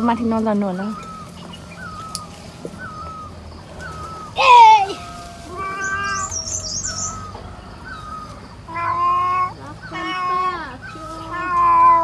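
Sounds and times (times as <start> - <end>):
high warbling chirps: 0.0 - 8.6
animal long cries: 2.8 - 12.0.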